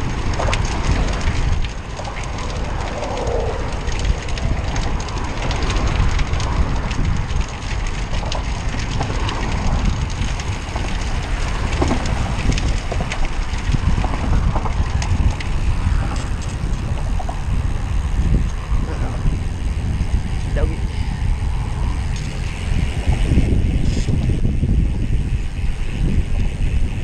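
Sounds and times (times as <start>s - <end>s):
bike clicks and rattles: 0.0s - 27.0s
wind buffeting microphone: 0.0s - 27.0s.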